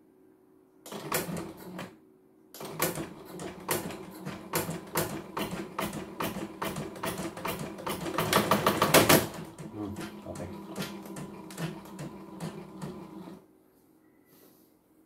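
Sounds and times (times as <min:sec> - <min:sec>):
embroidery machine clattering: 0:02.6 - 0:13.3.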